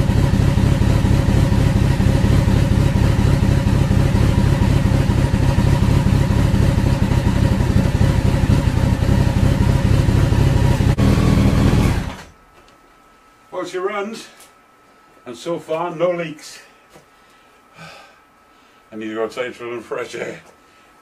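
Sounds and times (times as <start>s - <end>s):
motorcycle engine running: 0.0s - 12.3s.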